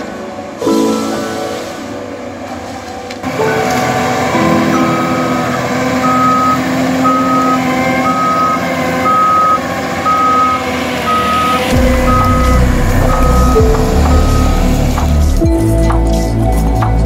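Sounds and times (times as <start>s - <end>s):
diesel engine running: 0.0s - 16.9s
reversing alarm beeping: 4.6s - 15.4s
deep low rumble: 11.7s - 15.7s.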